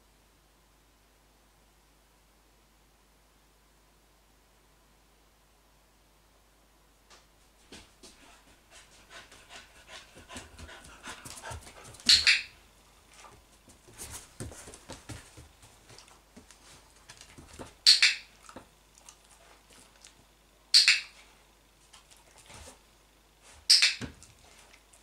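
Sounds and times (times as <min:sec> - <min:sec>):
dog panting: 0:08.1 - 0:12.2
training clicker clicks: 0:20.8 - 0:21.1.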